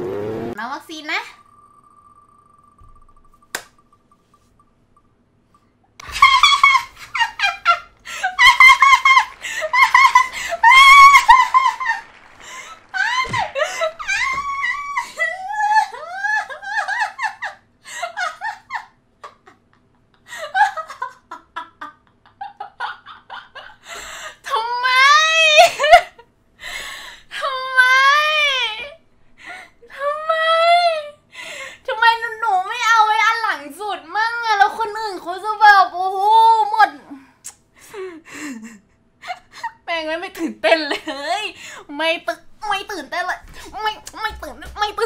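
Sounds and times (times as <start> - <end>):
young woman laughing: 6.0 - 24.2, 25.6 - 26.2
woman squealing and wailing: 8.4 - 12.0, 12.9 - 17.2.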